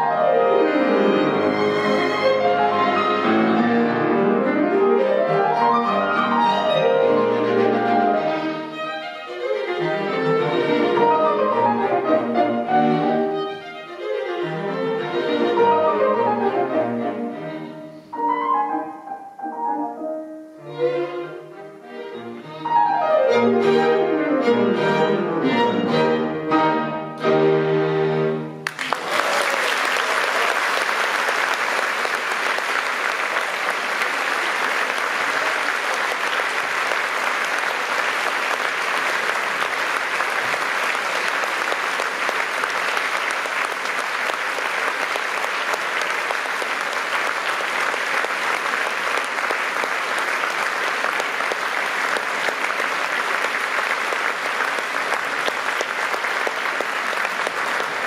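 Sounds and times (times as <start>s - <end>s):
audience applauding: 28.6s - 58.0s.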